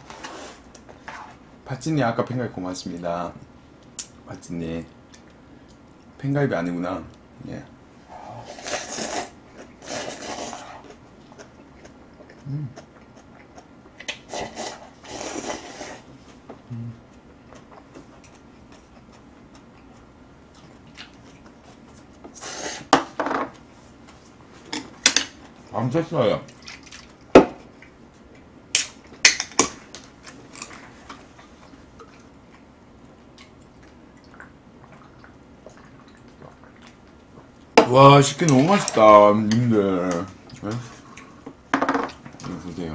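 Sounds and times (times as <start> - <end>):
noodle slurping: 8.1 - 10.9.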